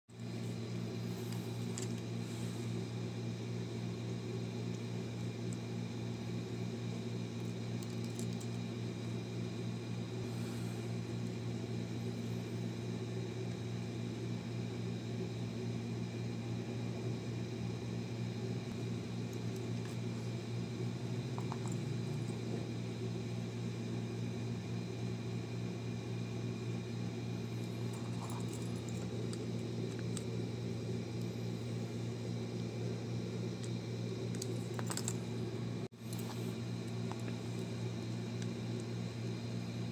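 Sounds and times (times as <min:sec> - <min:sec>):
low mechanical hum: 0:00.1 - 0:39.9.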